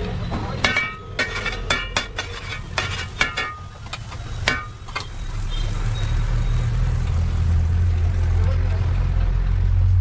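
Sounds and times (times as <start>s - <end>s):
metal spoon scraping iron pan: 0.6s - 5.2s.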